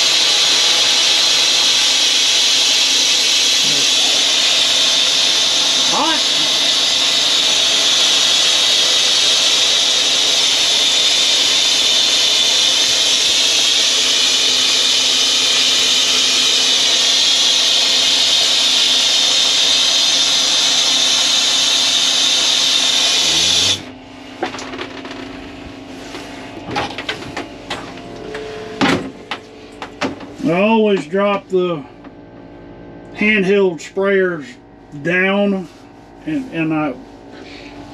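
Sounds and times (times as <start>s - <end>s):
compressed air hissing: 0.0s - 23.9s, 37.3s - 37.9s.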